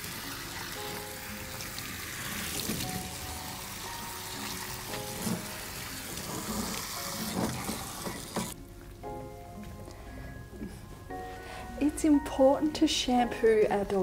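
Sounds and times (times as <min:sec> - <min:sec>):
shower spray hissing: 0:00.0 - 0:08.6.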